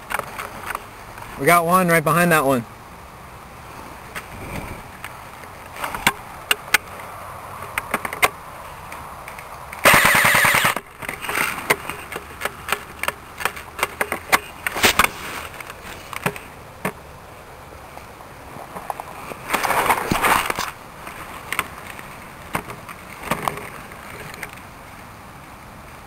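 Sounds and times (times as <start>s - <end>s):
airsoft gun full-auto burst: 9.8s - 10.8s.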